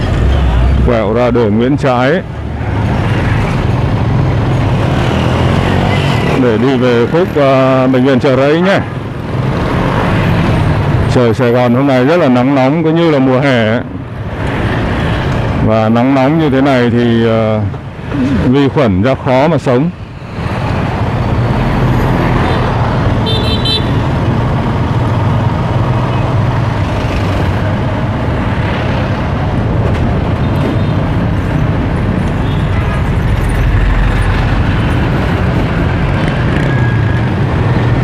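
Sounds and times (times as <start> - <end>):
road traffic engines: 0.0 - 38.0
car horn toot: 22.4 - 24.0.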